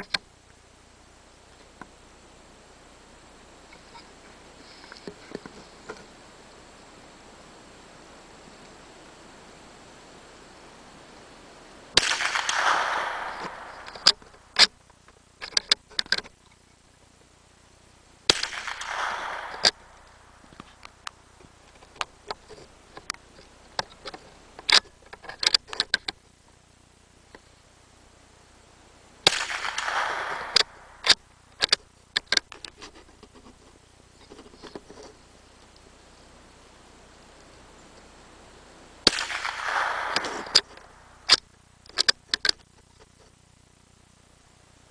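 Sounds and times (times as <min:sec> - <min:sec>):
rifle shots with echo: 0:12.0 - 0:14.5, 0:18.3 - 0:20.4, 0:29.2 - 0:31.0, 0:39.0 - 0:41.2.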